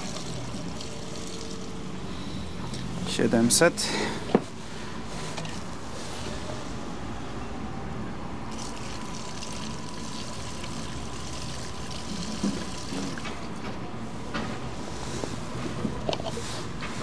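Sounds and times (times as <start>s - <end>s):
fuel pouring into tank: 0.0s - 1.9s, 8.5s - 13.6s.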